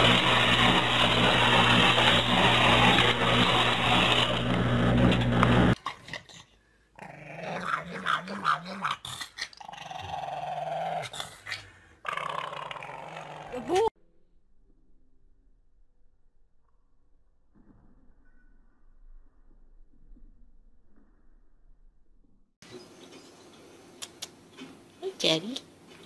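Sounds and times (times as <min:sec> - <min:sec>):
loud steady noise with low hum: 0:00.0 - 0:05.8
dog growling and whining: 0:07.0 - 0:13.9.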